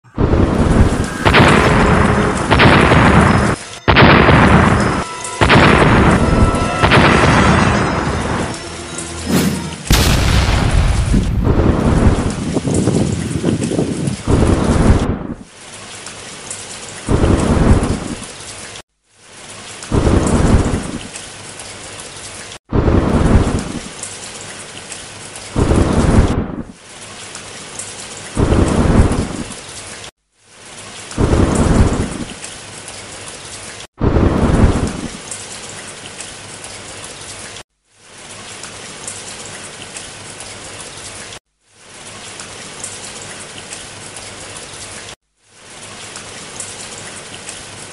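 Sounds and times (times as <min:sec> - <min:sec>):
low rumble of thunder: 0:00.2 - 0:08.5, 0:09.9 - 0:15.5, 0:17.1 - 0:18.2, 0:19.9 - 0:21.1, 0:22.7 - 0:23.9, 0:25.6 - 0:26.7, 0:28.4 - 0:29.5, 0:31.2 - 0:32.3, 0:34.0 - 0:35.2
steady rain hiss: 0:00.2 - 0:47.9.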